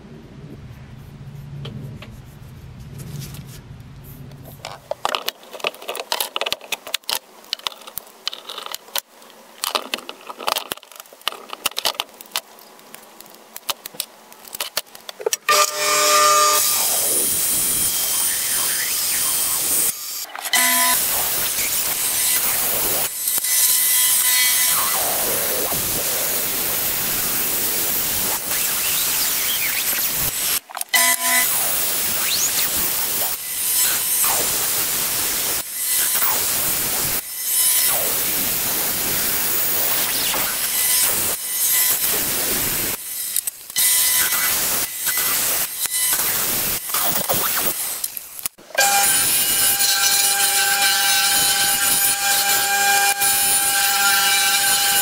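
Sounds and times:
band saw cutting: 0:15.5 - 0:55.0.

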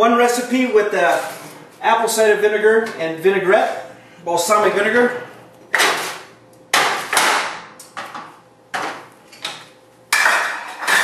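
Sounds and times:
dishes and pans clattering: 0:10.1 - 0:11.0.

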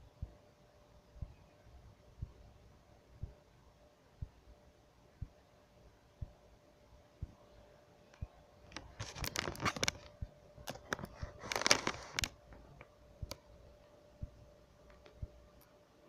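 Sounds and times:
faint steady hum: 0:00.0 - 0:16.0
rustling and crinkling: 0:08.6 - 0:13.4.

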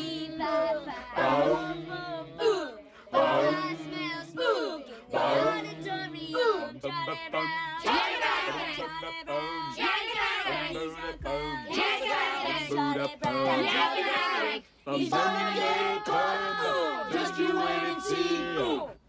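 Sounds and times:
group singing doo-wop a cappella: 0:00.0 - 0:19.0.

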